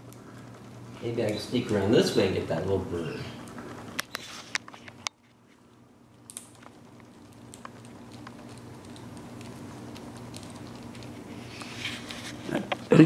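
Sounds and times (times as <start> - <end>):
low room hum: 0.0 - 13.0
parrot gnawing on plastic: 3.3 - 12.9.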